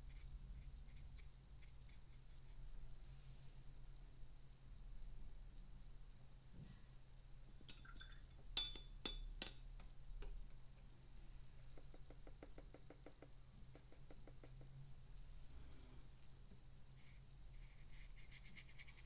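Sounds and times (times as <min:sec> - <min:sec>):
paintbrush clinking on a water jar: 0:07.7 - 0:09.7.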